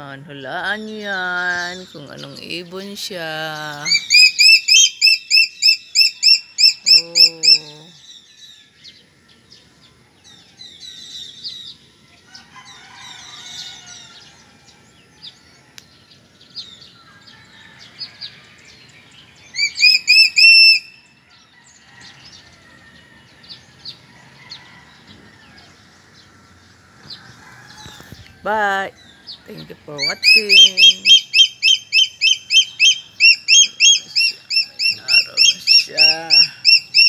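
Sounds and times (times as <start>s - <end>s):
small birds chirping: 0.0s - 37.0s
eagle yelping calls: 3.6s - 8.0s, 19.5s - 21.0s, 29.9s - 37.0s.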